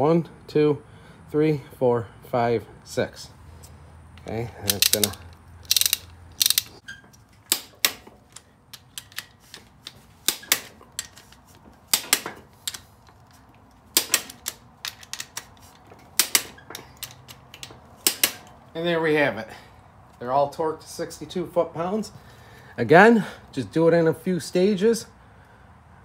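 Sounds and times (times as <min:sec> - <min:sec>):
torque wrench ratcheting and clicking: 0:04.6 - 0:06.8, 0:08.7 - 0:11.3.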